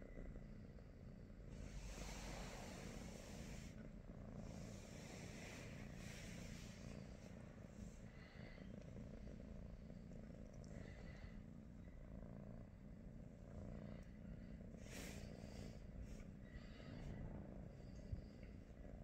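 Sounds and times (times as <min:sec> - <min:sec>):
cat purring: 0:00.0 - 0:19.0.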